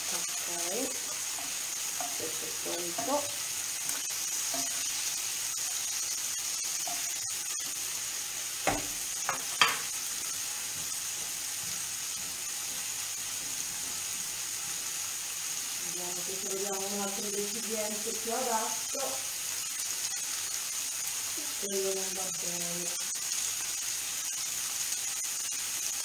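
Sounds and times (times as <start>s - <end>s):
octopus sizzling in oil: 0.0s - 26.0s
pan knocking: 8.7s - 9.9s.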